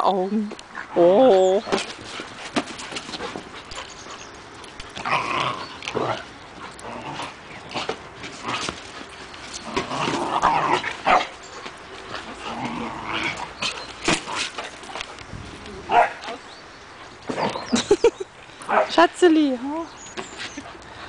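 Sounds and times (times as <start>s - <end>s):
dog barking and yipping: 15.9s - 16.3s.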